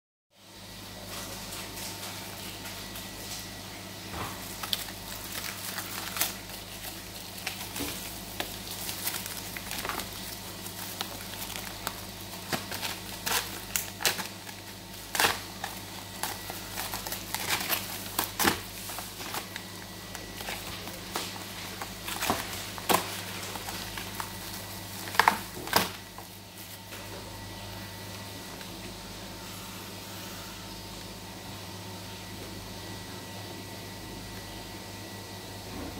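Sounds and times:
plastic wrap crinkling and tearing: 1.0s - 29.0s.

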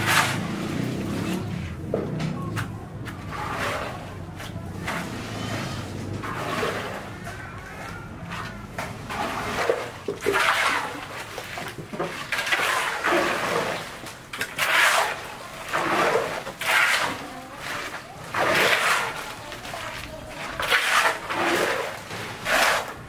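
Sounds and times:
shovel scraping: 0.0s - 1.8s, 3.1s - 23.0s
wet concrete slopping and splashing: 6.2s - 23.0s.

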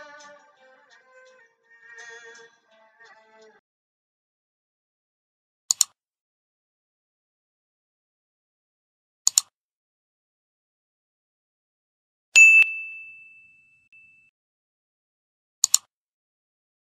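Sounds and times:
mouse double-click: 5.7s - 6.0s, 9.3s - 9.5s, 15.6s - 15.9s
bell ding: 12.4s - 14.3s.

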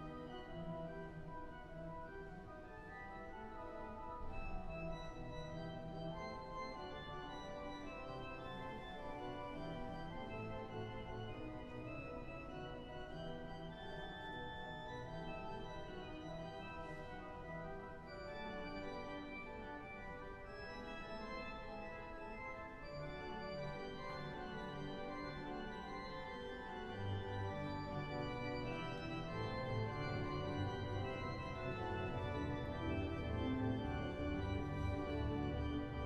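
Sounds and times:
pipe organ chords and melody: 0.0s - 36.0s
deep organ pedal bass notes: 22.5s - 36.0s.

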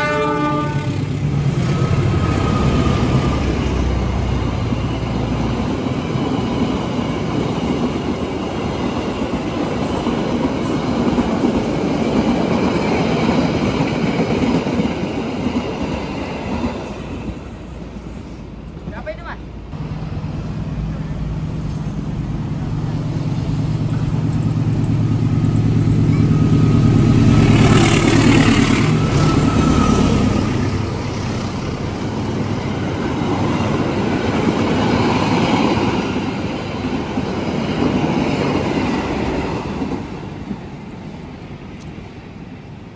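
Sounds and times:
diesel locomotive engine hum: 0.0s - 42.9s
train wheels rolling on rails: 1.0s - 19.0s, 19.7s - 42.9s.

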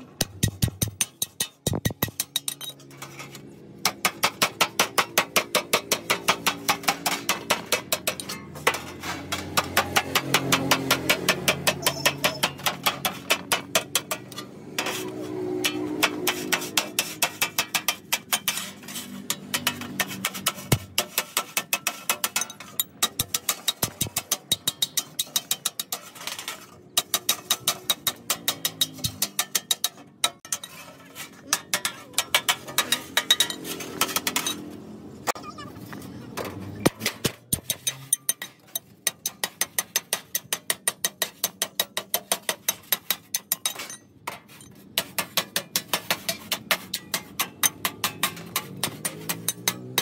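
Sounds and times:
hammer clanking on sheet metal: 44.9s - 50.0s.

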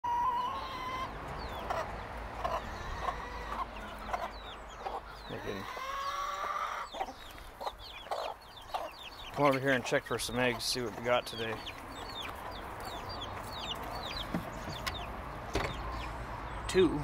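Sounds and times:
hen clucking: 0.0s - 16.2s
long rising chicken call: 0.1s - 1.2s
chicks peeping: 0.1s - 17.0s.

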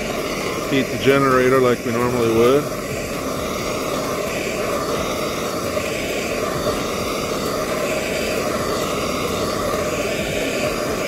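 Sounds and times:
gas torch flame rushing: 0.0s - 11.0s.

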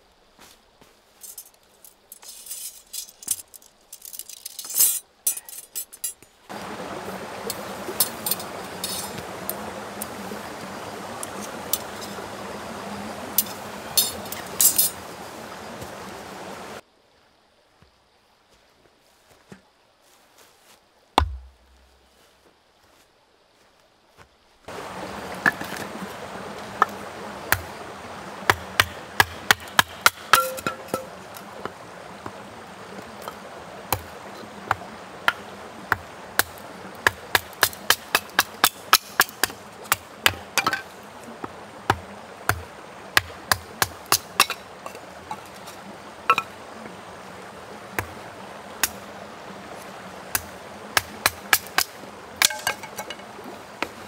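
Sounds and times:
hatchet splitting wood: 21.2s - 21.6s.

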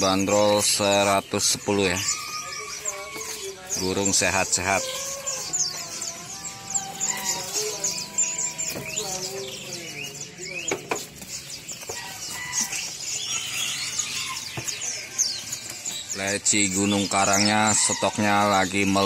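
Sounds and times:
songbirds chirping and trilling: 0.0s - 19.0s
rooster calling: 1.6s - 10.1s, 11.8s - 15.2s.

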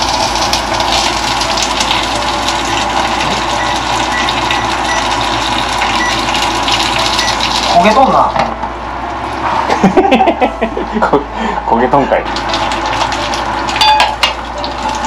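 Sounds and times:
dumplings sizzling in a frying pan: 0.0s - 8.3s, 12.2s - 15.0s.

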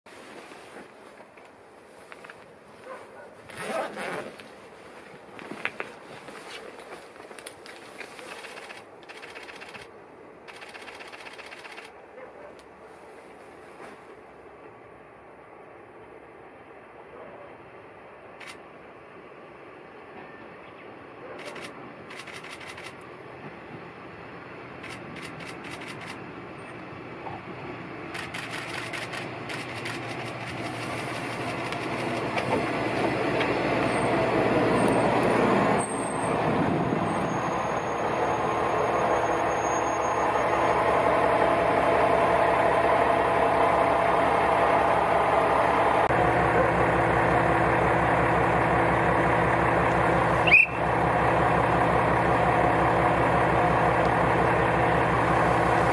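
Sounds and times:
diesel railcar approaching: 0.1s - 55.9s
diesel engine idling: 28.2s - 55.9s.

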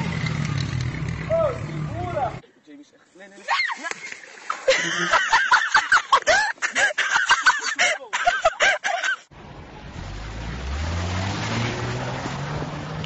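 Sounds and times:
suv engine revving: 9.4s - 13.0s.

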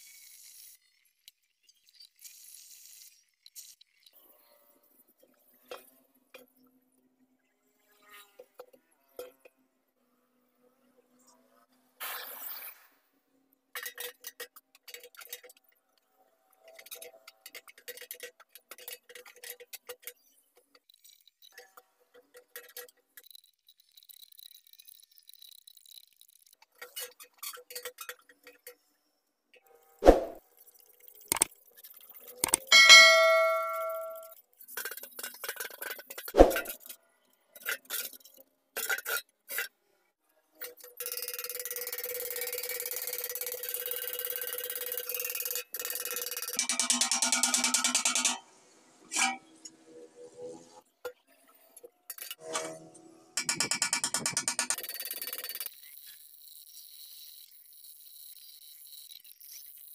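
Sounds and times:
tool tapping on metal tank: 32.8s - 34.2s.

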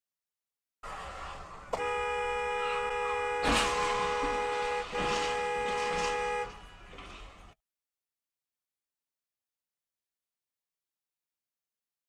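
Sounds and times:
car horn held: 1.7s - 7.1s
loud bang: 2.8s - 7.2s.

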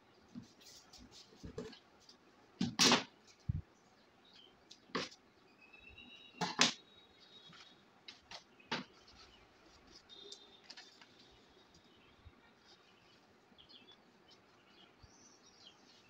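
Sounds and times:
faint high-pitched chirping: 3.4s - 16.0s
paper being handled: 7.4s - 13.4s.

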